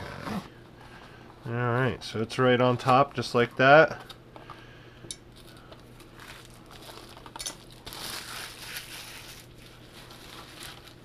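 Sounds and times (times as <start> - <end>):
packaging rustling and crinkling: 5.4 - 11.0.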